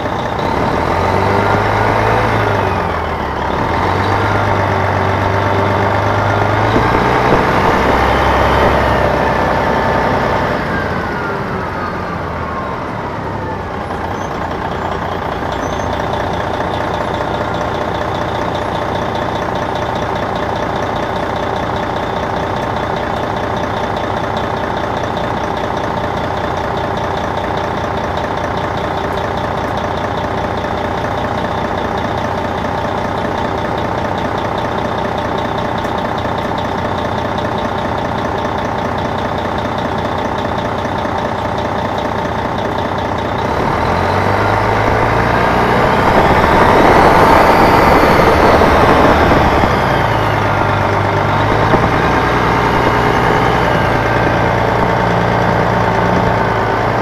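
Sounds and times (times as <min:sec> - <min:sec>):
bus diesel engine revving: 0:00.0 - 0:57.0.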